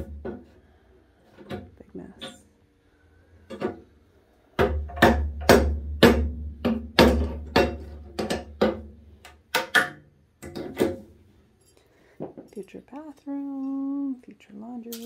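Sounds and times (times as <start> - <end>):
hammer striking wood: 4.6 - 11.0.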